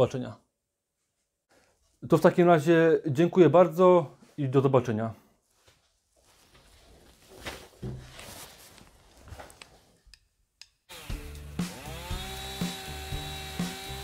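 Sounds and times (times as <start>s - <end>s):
knocks and rustles: 6.3s - 10.0s
music with steady beat: 11.0s - 14.0s.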